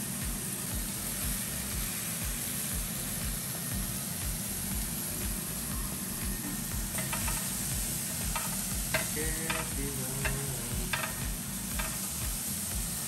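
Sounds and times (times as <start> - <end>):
burger patties sizzling: 0.0 - 13.0
spatula scraping and tapping pan: 6.9 - 7.6, 8.3 - 12.2.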